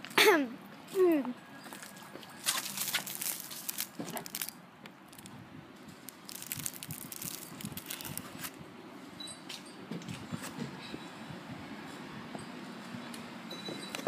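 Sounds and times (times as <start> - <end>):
paper and cardboard rustling: 1.8 - 4.5, 6.2 - 8.5.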